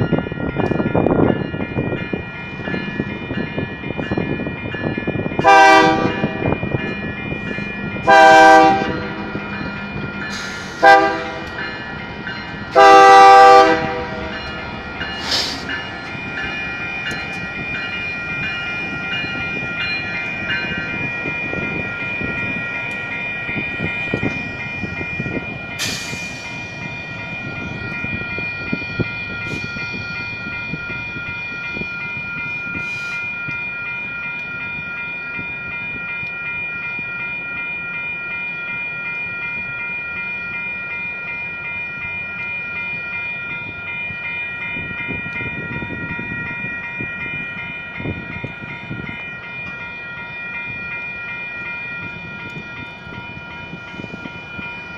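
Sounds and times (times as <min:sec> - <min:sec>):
locomotives rumbling and clacking: 0:00.0 - 0:36.4
electronic crossing bell ringing: 0:00.0 - 0:54.9.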